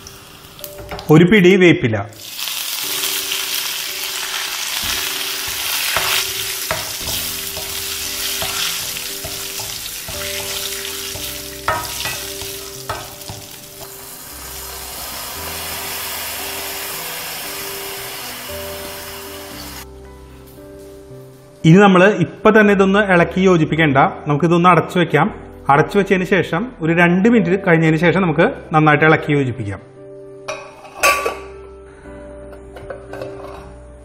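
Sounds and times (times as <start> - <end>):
spices sizzling in hot oil: 0.0 - 1.1, 2.1 - 21.6
spoon knocking against pan: 4.8 - 14.0.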